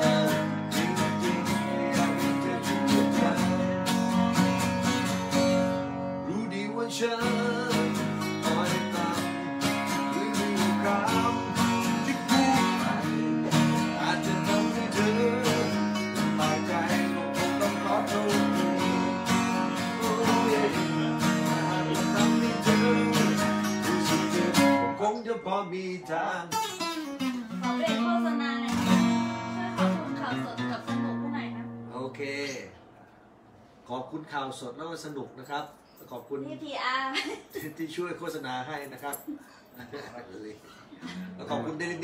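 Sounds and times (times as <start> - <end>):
man singing: 0.0 - 4.6, 6.2 - 26.6
acoustic guitars strumming: 0.0 - 33.8.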